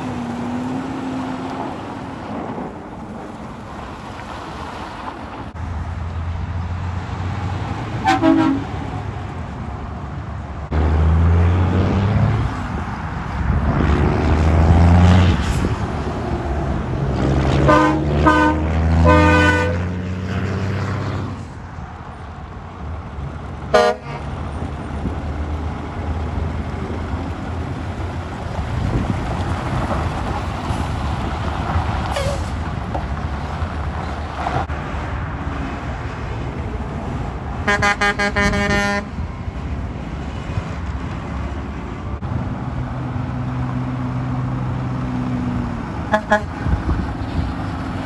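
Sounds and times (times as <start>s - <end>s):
diesel truck engines: 0.0s - 48.0s
truck horn toots: 8.0s - 8.8s, 17.6s - 20.0s, 23.7s - 24.3s, 37.6s - 39.1s, 46.1s - 46.6s.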